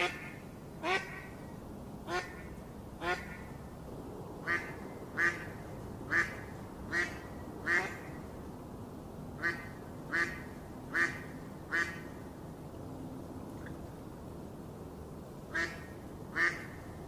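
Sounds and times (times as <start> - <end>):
duck quacking: 0.0 - 1.3, 2.1 - 3.4, 6.1 - 8.1, 15.5 - 16.8
faint background noise: 0.0 - 17.0.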